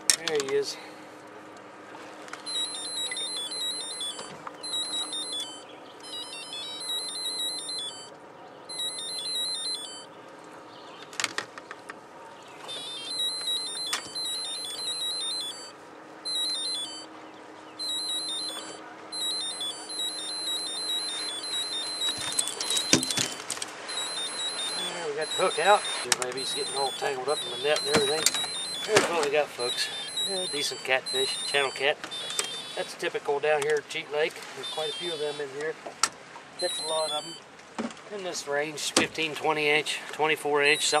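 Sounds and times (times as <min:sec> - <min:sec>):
high-pitched electronic beeping: 0:02.4 - 0:08.1, 0:08.7 - 0:10.1, 0:12.7 - 0:17.1, 0:17.8 - 0:33.0, 0:34.6 - 0:35.5, 0:36.6 - 0:37.4, 0:40.6 - 0:41.0.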